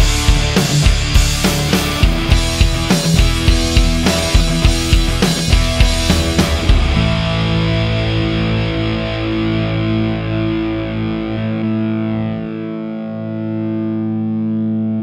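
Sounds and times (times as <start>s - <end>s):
distorted electric guitar chords: 0.0s - 15.0s.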